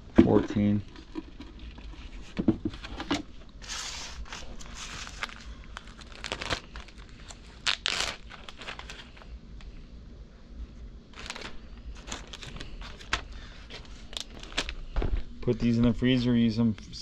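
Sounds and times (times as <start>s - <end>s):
plastic bag crinkling: 4.2s - 9.3s, 11.1s - 15.3s.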